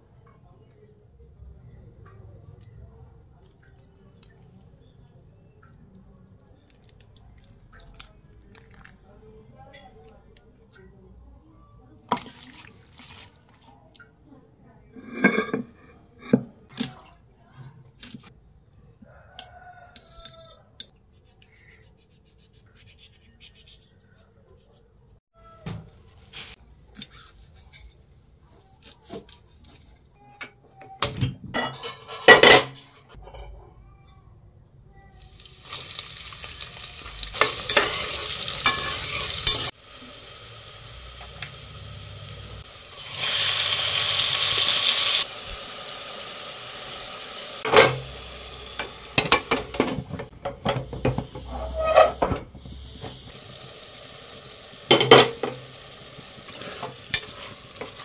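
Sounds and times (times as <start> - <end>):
metal spoon stirring and scraping: 15.0 - 16.4, 26.3 - 28.2, 31.6 - 33.5, 35.8 - 39.8, 48.8 - 52.7, 56.2 - 58.0
metal utensils clattering on pot: 15.0 - 16.6, 31.2 - 33.6, 37.2 - 39.7, 47.7 - 48.1, 48.8 - 52.6, 54.9 - 58.0
curry sizzling in a hot pan: 35.2 - 58.0.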